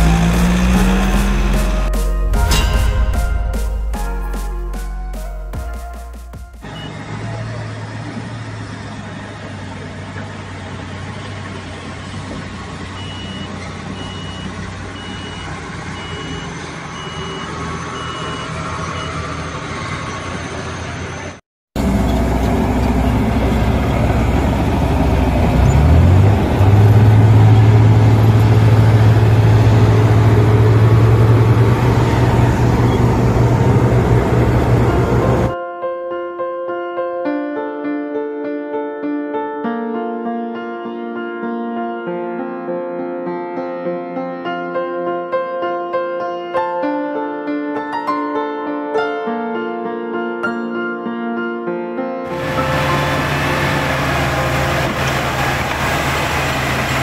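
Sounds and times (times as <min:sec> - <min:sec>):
bulldozer diesel engine: 0:00.0 - 0:03.9, 0:06.6 - 0:35.6, 0:52.3 - 0:57.0
backup alarm beeping: 0:13.0 - 0:19.2.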